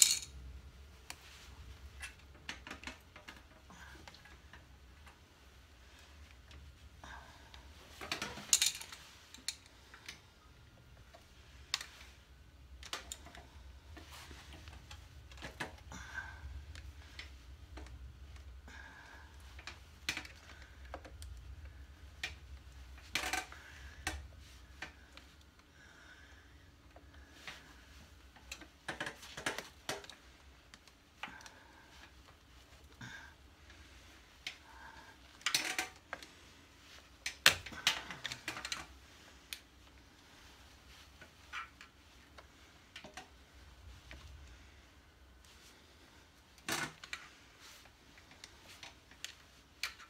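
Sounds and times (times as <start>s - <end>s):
hands handling wire clicking: 8.0s - 10.2s, 12.6s - 15.9s, 28.3s - 33.0s, 35.3s - 36.3s, 37.1s - 40.0s, 46.6s - 50.0s.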